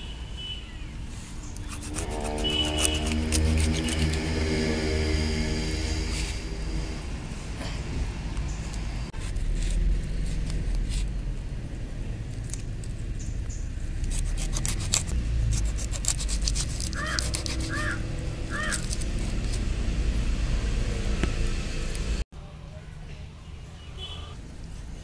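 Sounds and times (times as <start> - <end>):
steady low rumble: 1.9 - 14.2.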